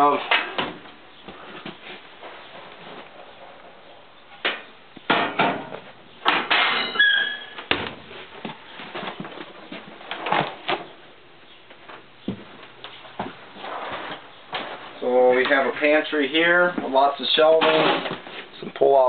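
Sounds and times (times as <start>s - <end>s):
short squeak: 6.8s - 7.6s.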